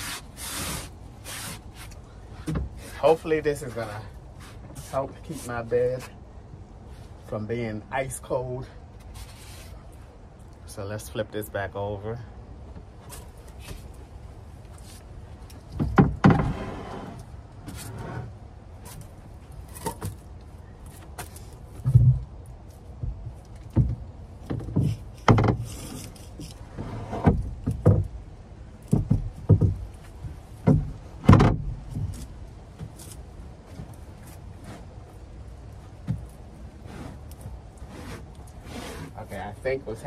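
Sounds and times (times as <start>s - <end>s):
bed platform thumping and knocking: 15.8s - 16.6s, 28.9s - 29.9s, 30.6s - 32.1s
platform scraping slides: 16.4s - 18.3s, 37.8s - 39.2s.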